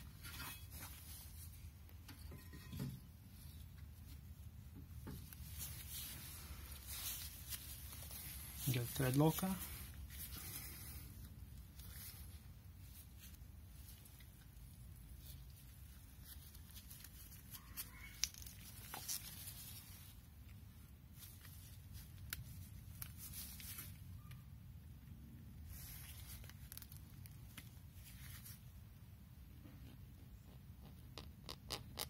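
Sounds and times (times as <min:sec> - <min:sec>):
gloved hands rustling and clicking: 0:03.4 - 0:24.4, 0:25.7 - 0:28.8.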